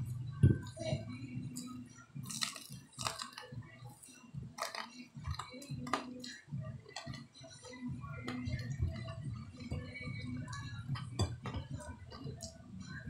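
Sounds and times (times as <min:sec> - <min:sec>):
person chewing fried chicken: 0:02.2 - 0:03.5.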